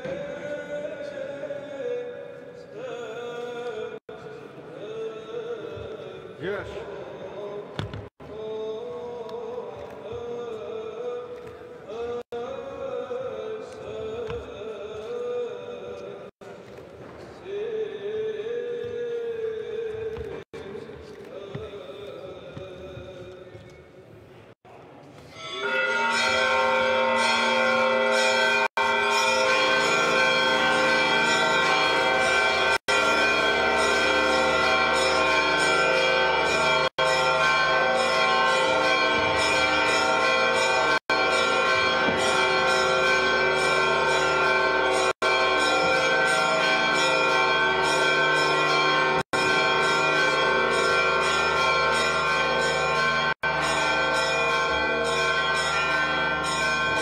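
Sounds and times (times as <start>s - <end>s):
church bells pealing: 25.3s - 57.0s.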